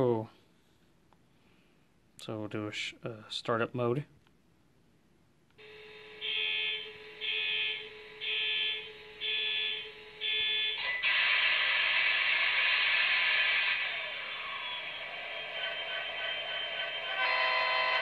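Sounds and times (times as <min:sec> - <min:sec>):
steady electronic hum: 0:05.5 - 0:18.0
alarm beeping: 0:05.6 - 0:18.0
diesel engine sound running: 0:12.0 - 0:17.2.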